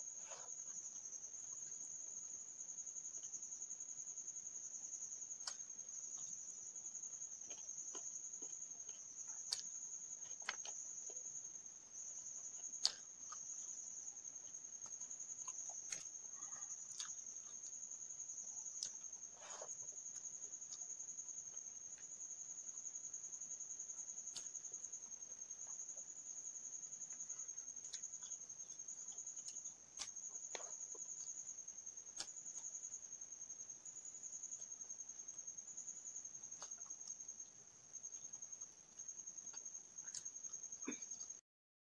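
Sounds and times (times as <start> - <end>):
chewing: 7.4 - 11.3, 12.2 - 22.1, 27.1 - 31.5.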